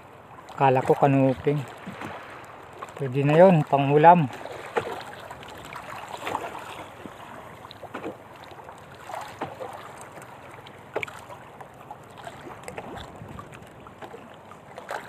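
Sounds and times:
water splashing against hull: 0.0s - 15.0s
wind: 0.0s - 15.0s.

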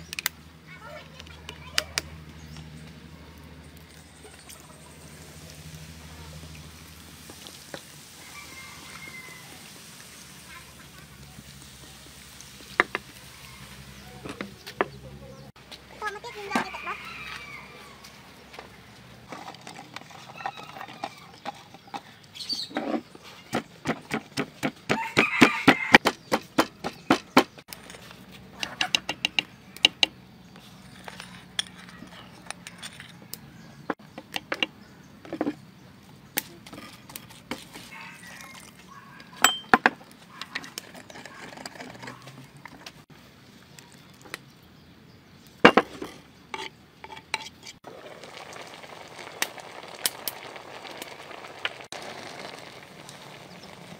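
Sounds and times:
pestle pounding in mortar: 23.5s - 27.6s
pestle clinks: 39.4s - 39.9s.

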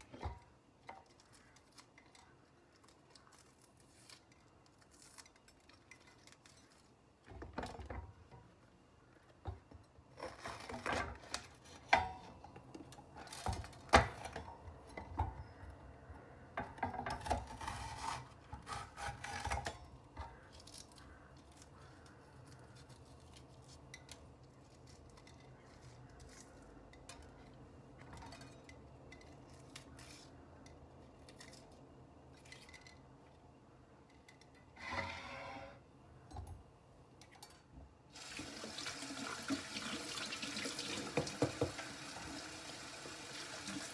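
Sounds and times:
rustling and snapping of peppers: 0.0s - 12.0s, 16.7s - 34.6s
knife cutting crisp peppers: 17.2s - 23.9s.

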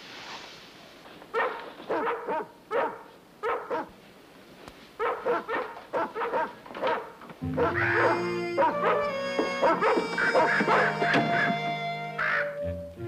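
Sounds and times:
dogs barking: 1.3s - 4.0s, 5.0s - 12.6s
music with held notes: 7.4s - 13.0s.

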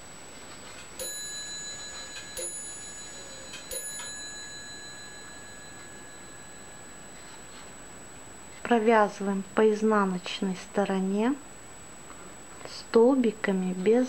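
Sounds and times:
bell-like chimes: 1.0s - 8.1s.

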